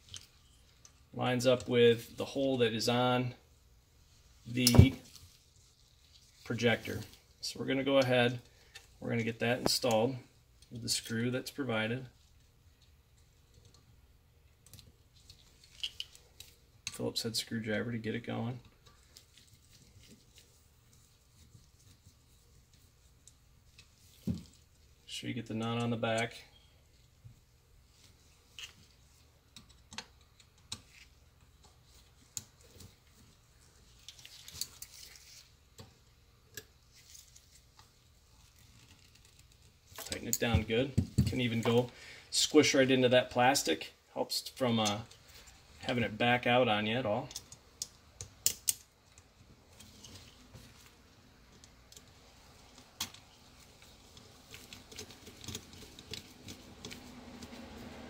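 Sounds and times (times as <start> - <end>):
small parts clicking and tapping: 0.0 - 1.0, 14.5 - 17.0, 28.5 - 33.0, 47.3 - 50.3, 51.4 - 57.6.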